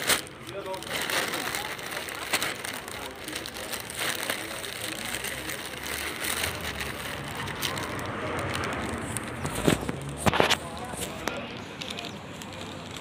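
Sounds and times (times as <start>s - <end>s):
faint voices: 0.0s - 13.0s
low engine rumble: 0.0s - 13.0s
traffic noise: 0.0s - 13.0s.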